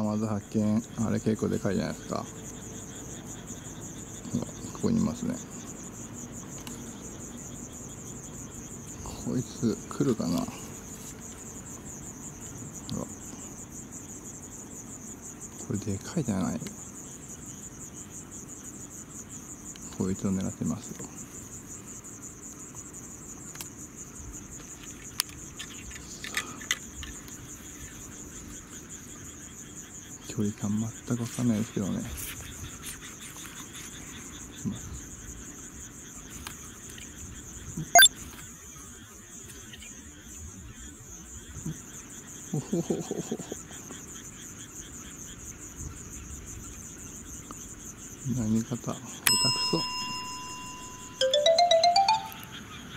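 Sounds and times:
crickets chirping: 0.0s - 52.9s.

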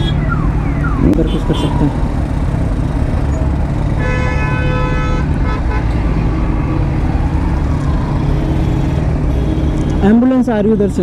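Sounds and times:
low rumble of traffic engines: 0.0s - 11.0s
vehicle horn blaring: 4.0s - 6.0s, 8.3s - 10.1s.

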